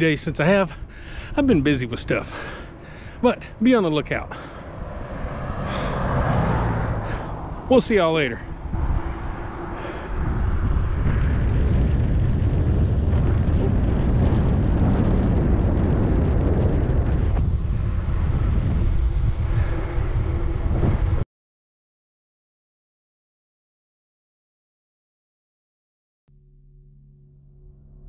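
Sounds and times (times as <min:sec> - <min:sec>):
wind buffeting microphone: 0:04.3 - 0:21.2.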